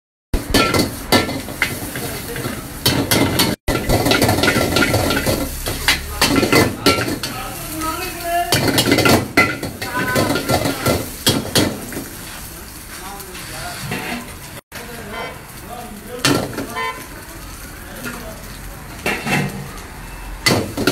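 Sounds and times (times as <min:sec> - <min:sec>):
food sizzling: 0:00.3 - 0:20.9
ladle clanking against a wok: 0:00.4 - 0:07.6, 0:08.5 - 0:12.1, 0:19.0 - 0:19.7.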